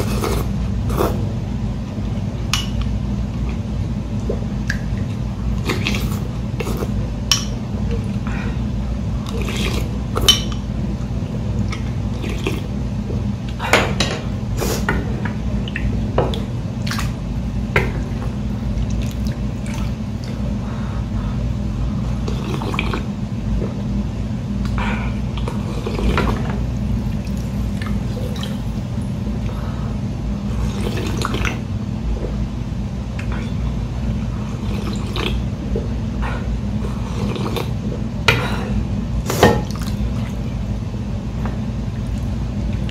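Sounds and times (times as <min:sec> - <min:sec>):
slurping noodles: 0:00.0 - 0:01.3, 0:05.6 - 0:07.0, 0:09.3 - 0:10.0, 0:12.1 - 0:12.7, 0:36.8 - 0:37.8
steady low hum: 0:00.0 - 0:42.9.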